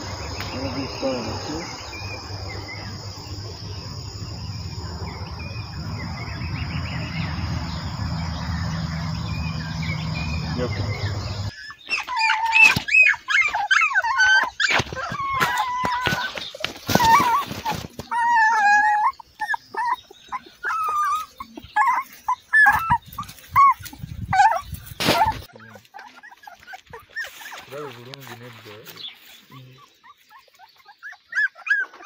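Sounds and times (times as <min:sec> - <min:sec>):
insects chirring: 0:00.0 - 0:11.6
puppies whimpering and yipping: 0:09.3 - 0:32.0.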